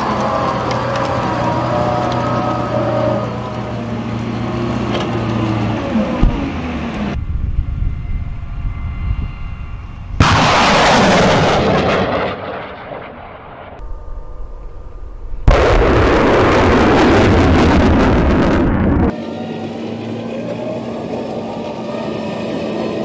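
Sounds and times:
launcher engine hum: 0.0s - 23.0s
rocket launch roar: 10.0s - 19.2s.

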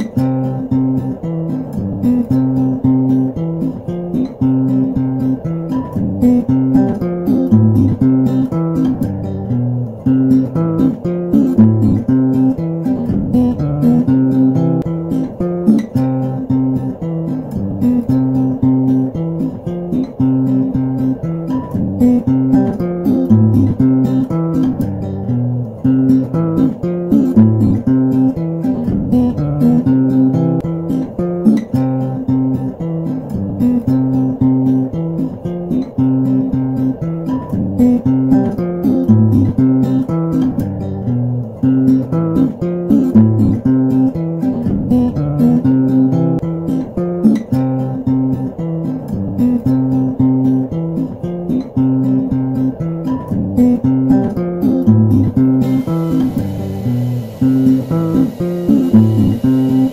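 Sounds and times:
guitar plucked and strummed: 0.0s - 59.9s.

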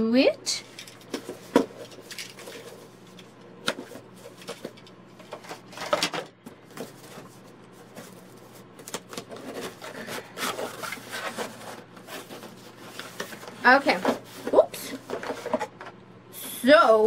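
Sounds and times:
cardboard rustling: 0.8s - 15.9s.

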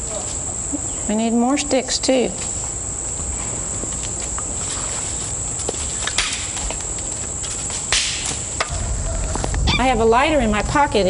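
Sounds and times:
insects chorus: 0.0s - 11.0s.

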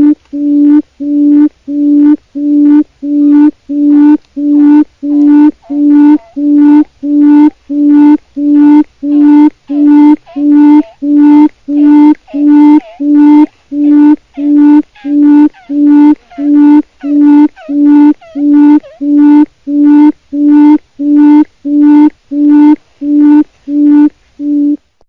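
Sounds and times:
quail calling: 5.0s - 7.6s, 9.0s - 19.4s.

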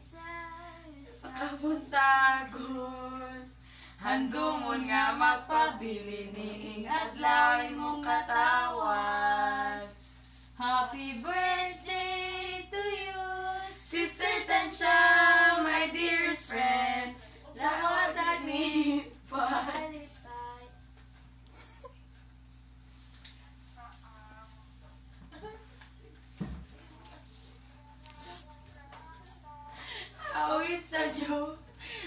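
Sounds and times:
women and girl singing: 0.0s - 10.0s, 10.6s - 20.8s, 27.0s - 31.7s.

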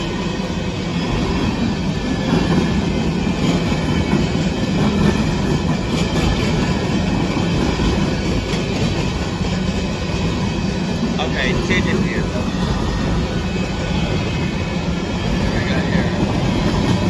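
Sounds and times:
train wheels rolling on track: 0.0s - 17.0s.

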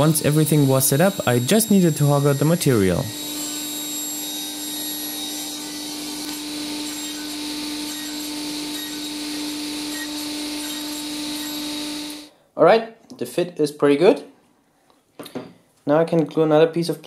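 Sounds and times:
table saw running: 0.0s - 12.3s
wood block cut on saw blade: 0.0s - 12.3s.

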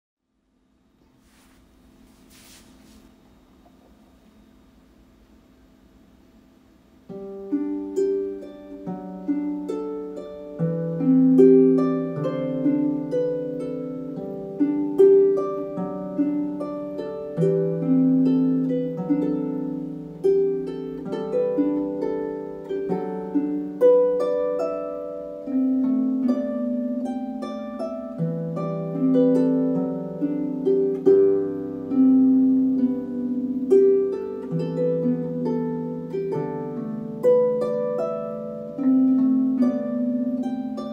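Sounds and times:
harp melody: 7.0s - 40.9s.

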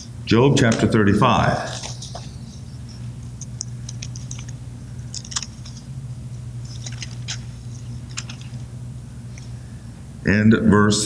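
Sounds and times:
steady low hum: 0.0s - 11.0s
thin pages being turned: 1.6s - 2.3s, 3.8s - 5.9s, 6.6s - 8.7s.

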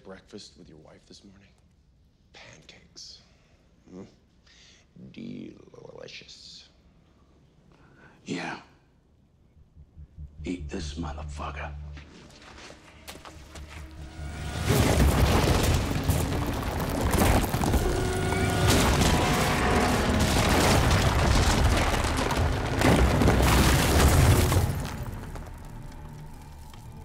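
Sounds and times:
dramatic film score: 9.4s - 27.0s
collapsing concrete rumble and crash: 14.2s - 27.0s.

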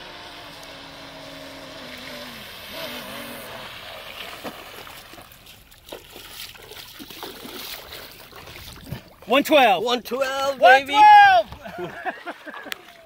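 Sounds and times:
rc boat electric motors whining: 0.0s - 3.9s.

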